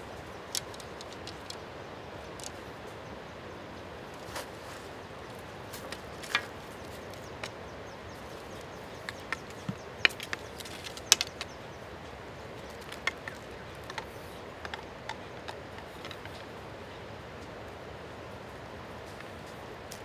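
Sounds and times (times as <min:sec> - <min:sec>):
steady background hiss: 0:00.0 - 0:20.0
small clicks and taps: 0:08.5 - 0:11.6, 0:12.6 - 0:16.5.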